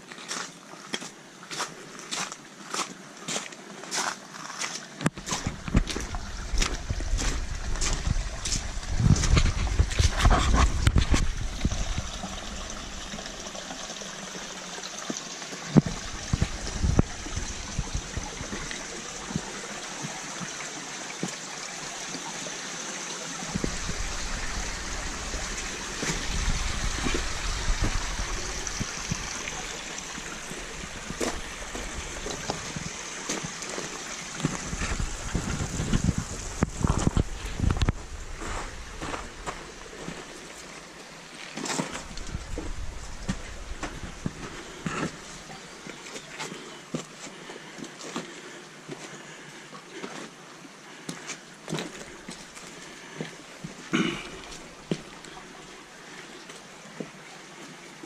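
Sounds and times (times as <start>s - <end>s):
water trickling: 0.1s - 58.0s
low rumble: 5.5s - 12.4s.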